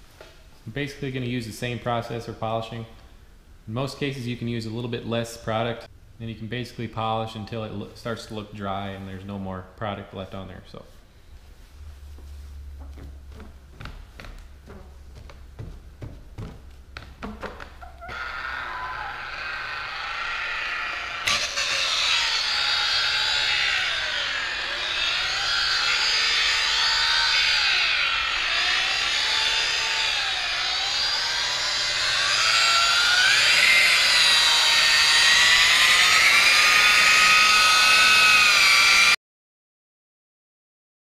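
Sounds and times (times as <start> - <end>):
electric polisher motor whine: 18.0 - 39.2.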